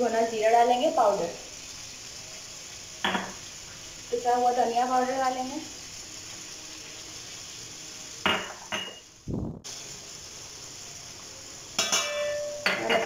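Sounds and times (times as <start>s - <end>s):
oil and tomatoes sizzling: 0.0s - 13.0s
glass bowl clinks: 8.3s - 9.0s.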